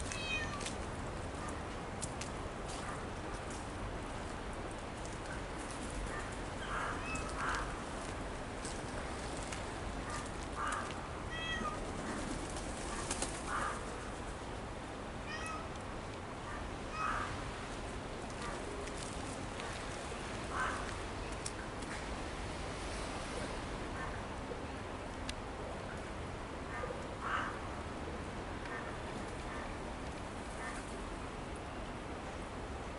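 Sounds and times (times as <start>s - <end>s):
outdoor background hum: 0.0s - 32.9s
cat meowing: 0.1s - 0.7s, 11.3s - 11.8s, 15.3s - 15.7s.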